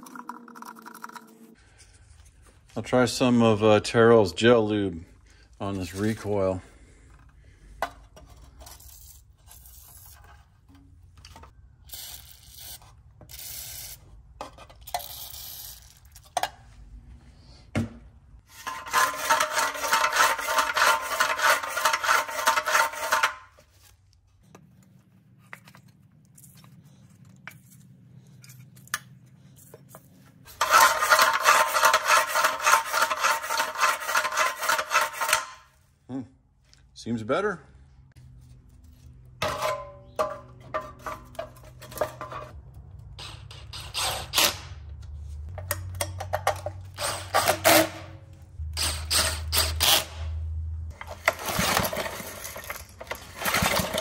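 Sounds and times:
recoil starter rope rasping: 0:18.5 - 0:23.6, 0:30.5 - 0:35.7.

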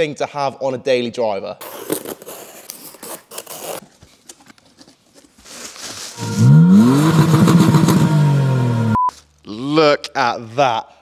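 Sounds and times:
blade slitting packing tape: 0:01.6 - 0:03.8
rising pitch sound effect: 0:06.2 - 0:09.0
steady high tone: 0:06.2 - 0:09.1.

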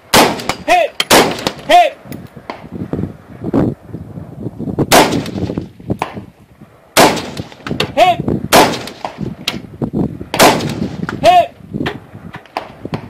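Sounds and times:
rifle shots: 0:00.1 - 0:01.7, 0:04.9 - 0:06.2, 0:07.0 - 0:07.8, 0:08.5 - 0:09.2, 0:10.4 - 0:11.0.

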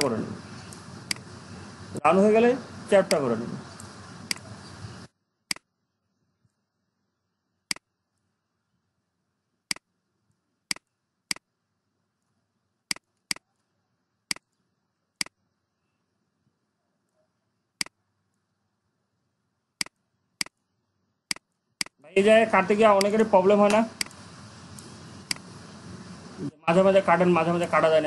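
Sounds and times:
computer mouse clicking: 0:00.7 - 0:01.3, 0:03.8 - 0:04.5, 0:07.7 - 0:07.9, 0:09.7 - 0:09.9, 0:10.7 - 0:11.5, 0:12.9 - 0:13.7, 0:14.3 - 0:14.6, 0:19.8 - 0:20.7, 0:21.3 - 0:22.0, 0:23.0 - 0:25.5.

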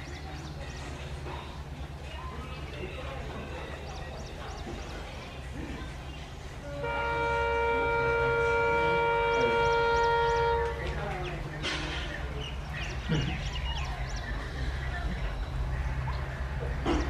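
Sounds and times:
birds chirping: 0:00.0 - 0:17.0
engine rumble: 0:00.0 - 0:17.0
locomotive horn blast: 0:06.6 - 0:11.1.

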